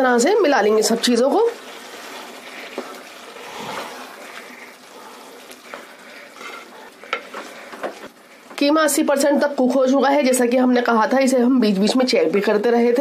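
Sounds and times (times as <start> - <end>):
spoon stirring wet mince: 0.4 - 8.7.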